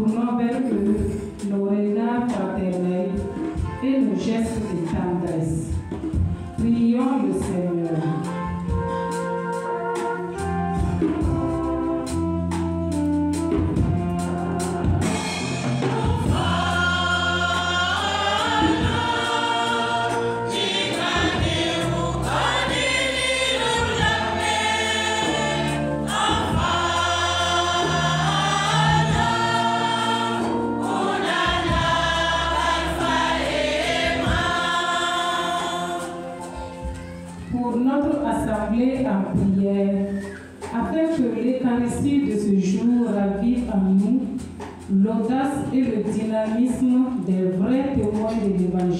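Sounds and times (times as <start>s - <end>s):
sharp percussion strokes: 12.5s - 37.9s
choir singing a hymn: 13.9s - 37.0s.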